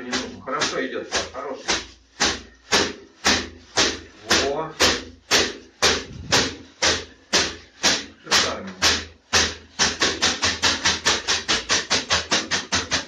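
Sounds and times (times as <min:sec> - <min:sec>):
leafy brooms striking: 0:00.0 - 0:13.0.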